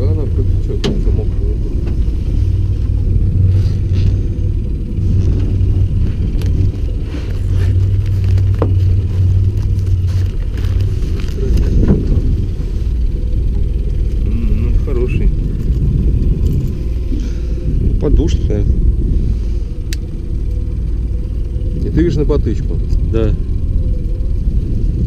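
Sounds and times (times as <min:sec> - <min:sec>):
steady low rumble: 0:00.0 - 0:25.0
fishing gear rustling and clicking: 0:01.9 - 0:14.2, 0:15.4 - 0:17.2.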